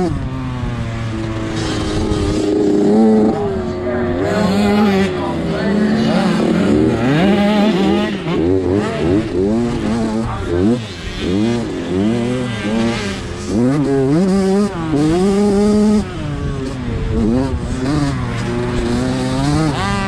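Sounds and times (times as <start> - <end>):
motorbike engine revving: 0.0 - 20.0.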